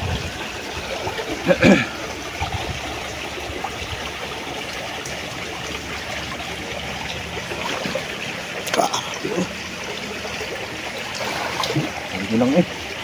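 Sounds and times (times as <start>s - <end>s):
stream water trickling: 0.0s - 13.0s.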